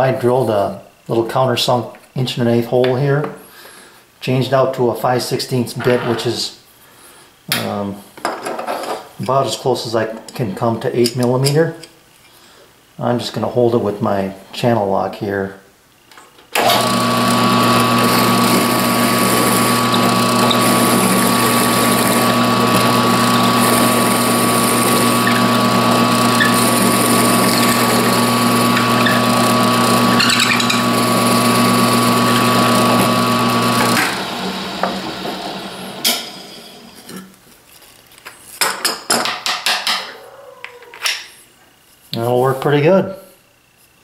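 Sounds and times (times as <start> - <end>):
motor winding down: 16.6 - 36.4
drill press drilling wood: 16.6 - 36.5.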